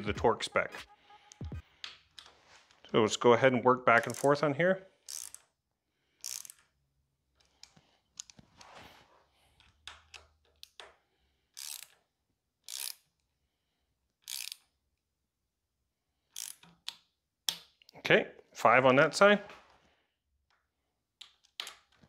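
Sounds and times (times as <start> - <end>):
torque wrench ratcheting: 4.0 - 4.4, 5.0 - 5.5, 6.2 - 6.7, 11.6 - 12.0, 12.6 - 13.1, 14.2 - 14.7, 16.3 - 16.7.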